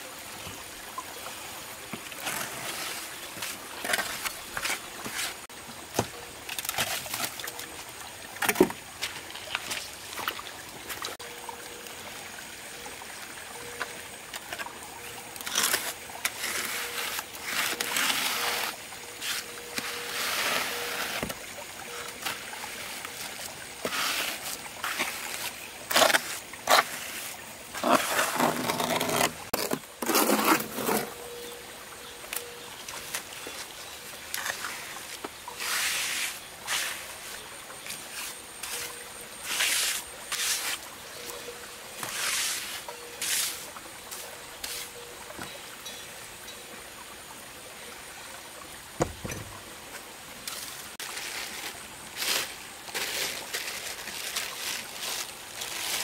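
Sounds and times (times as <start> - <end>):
trowel scraping wet concrete: 15.4 - 31.3, 35.6 - 40.8, 42.0 - 45.0.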